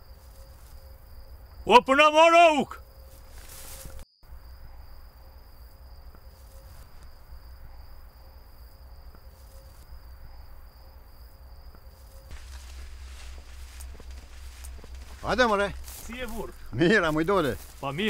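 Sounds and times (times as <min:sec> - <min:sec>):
insects chirring: 0:00.0 - 0:18.0
rustling hiss: 0:03.0 - 0:04.1, 0:11.9 - 0:18.0.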